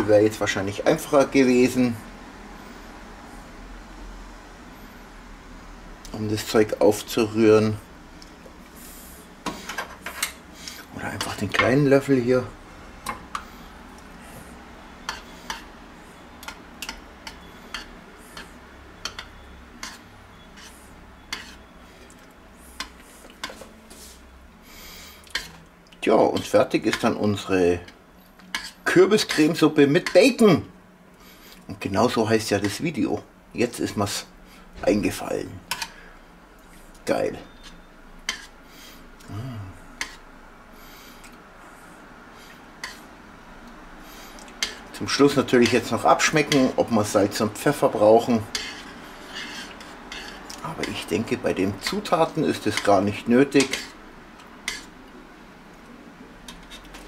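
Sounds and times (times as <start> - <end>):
spoon stirring thick soup: 13.0 - 24.2, 24.8 - 27.2, 27.8 - 30.4, 36.6 - 38.6, 42.5 - 55.2
spoon clinking against pot: 19.0 - 20.0.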